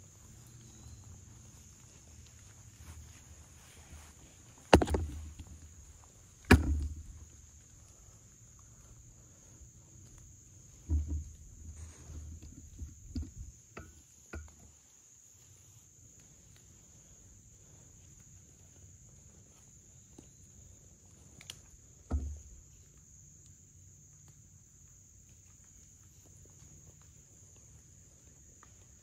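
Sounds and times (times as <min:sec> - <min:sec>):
insects chirping: 0:00.0 - 0:29.0
soft dull thumps: 0:10.8 - 0:14.5.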